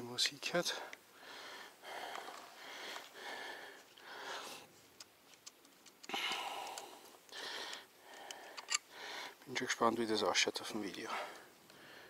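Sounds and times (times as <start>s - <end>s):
person breathing hard: 1.1s - 4.7s, 6.1s - 9.4s, 11.1s - 12.0s
small clicks: 4.9s - 8.9s.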